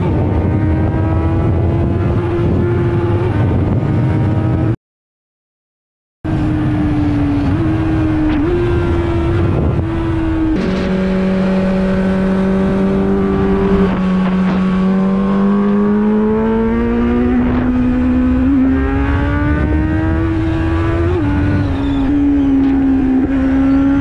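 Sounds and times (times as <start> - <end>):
wind rush: 0.0 - 4.7, 6.3 - 24.0
motorcycle engine running hard: 6.3 - 24.0.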